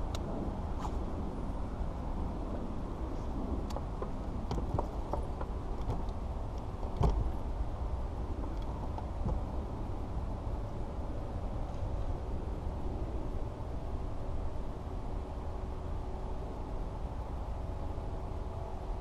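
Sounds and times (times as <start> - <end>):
low rumble of wind and water: 0.0 - 19.0.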